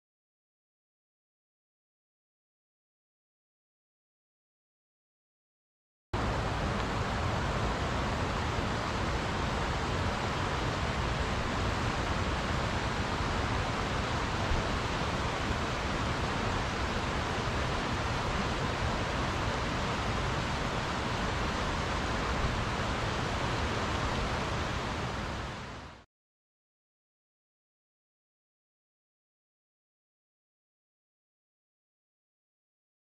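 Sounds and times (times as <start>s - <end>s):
stream water flowing: 6.2s - 26.0s.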